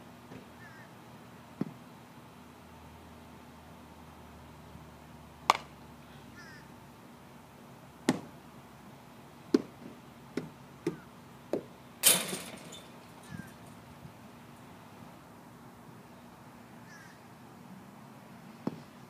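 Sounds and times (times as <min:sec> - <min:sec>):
baseball bat hitting ball: 0:05.5 - 0:05.7.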